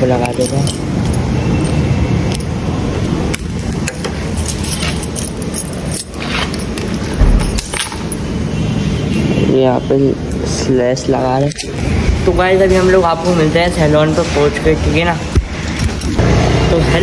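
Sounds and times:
keys and lock jangling: 0.0 - 2.6, 3.3 - 8.3, 11.4 - 11.8
rumbling handling noise: 0.0 - 8.4
heavy thump: 7.2 - 7.8.

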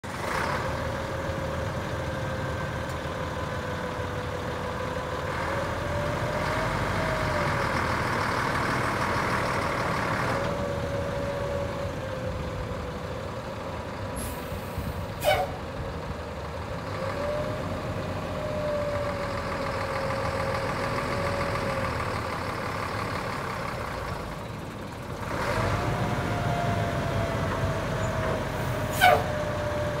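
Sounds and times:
diesel engine running: 0.0 - 30.0.

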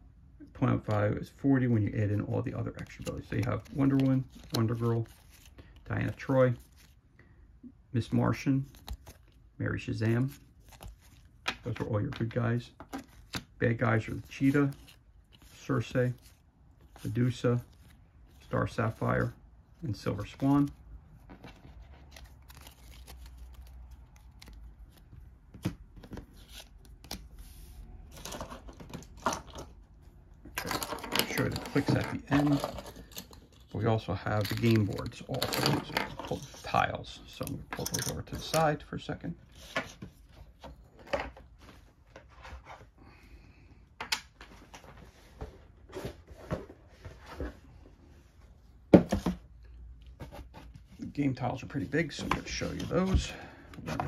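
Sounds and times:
cards rustling: 1.6 - 7.1, 8.0 - 38.8, 50.1 - 54.0.

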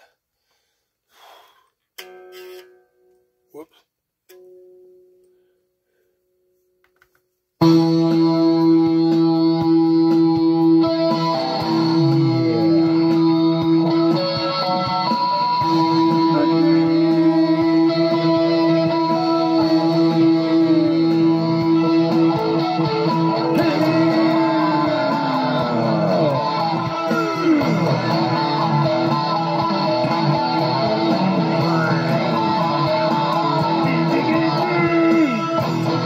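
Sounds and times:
electric guitar with effects: 7.6 - 36.0.

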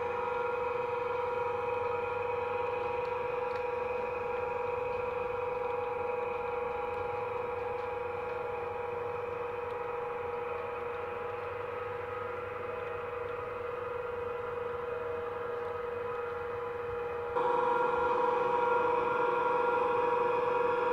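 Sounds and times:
model train humming: 0.0 - 20.9.

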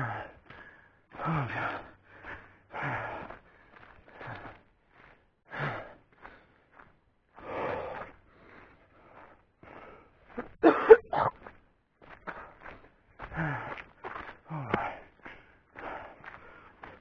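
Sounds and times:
man gasping: 0.0 - 4.6, 5.5 - 6.4, 13.2 - 17.0
man breathing hard: 0.0 - 11.3, 12.1 - 17.0.

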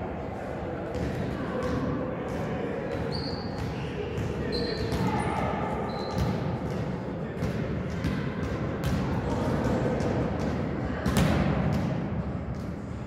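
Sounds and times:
volleyball hit and bouncing: 0.9 - 12.9
shoes squeaking on court: 2.9 - 3.7, 4.4 - 6.4.

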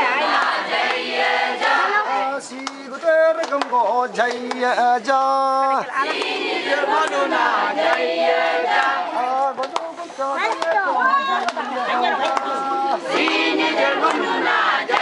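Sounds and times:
group of voices chanting: 0.0 - 2.4, 5.8 - 9.6, 10.4 - 15.0.

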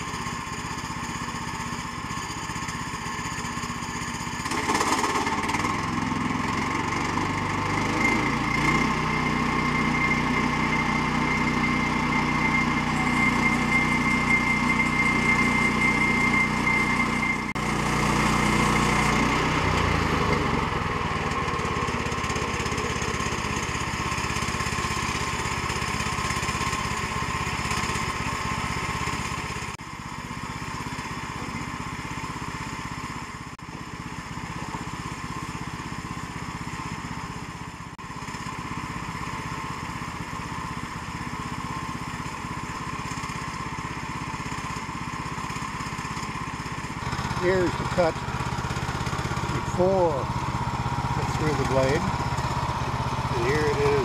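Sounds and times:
gasoline engine running: 0.0 - 54.0
high steady tone: 9.8 - 17.6.

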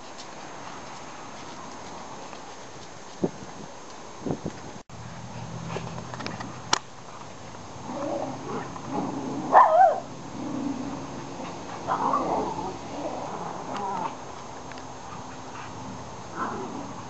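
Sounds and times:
dog whining yelps: 9.5 - 10.1.

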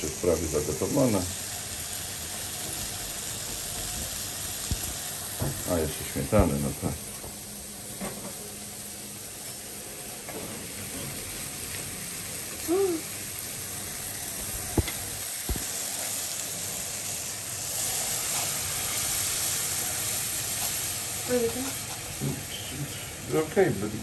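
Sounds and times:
vegetables sizzling in a wok: 0.0 - 24.0.

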